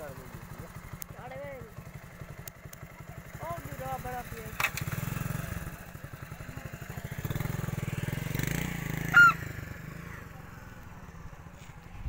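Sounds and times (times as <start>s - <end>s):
small engine putter: 0.3s - 9.3s
loud honk bending in pitch: 9.1s - 9.4s.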